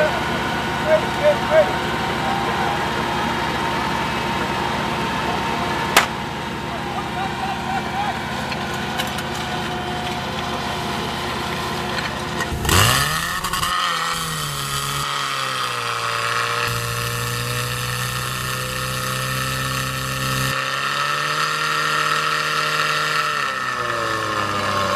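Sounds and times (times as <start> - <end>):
fire pump engine revving: 0.0 - 24.9.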